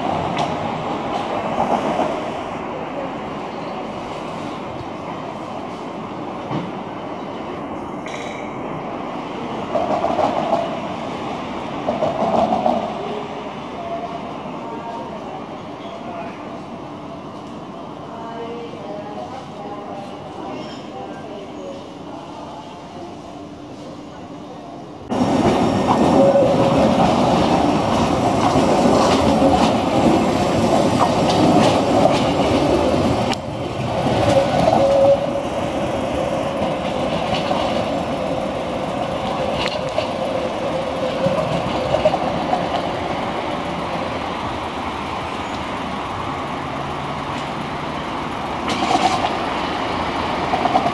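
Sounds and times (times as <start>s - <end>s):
tram wheels rumbling on rail: 0.0s - 50.9s
clicks and clatter of tram: 8.0s - 8.5s, 25.2s - 35.1s, 36.6s - 38.1s, 39.0s - 40.2s, 48.5s - 49.4s, 50.4s - 50.9s.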